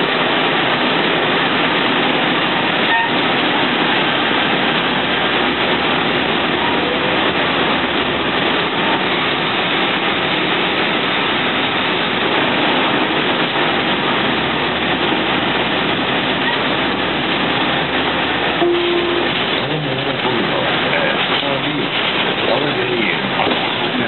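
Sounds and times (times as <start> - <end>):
bus engine and road noise: 0.0 - 24.0
short steady tone: 18.6 - 19.4.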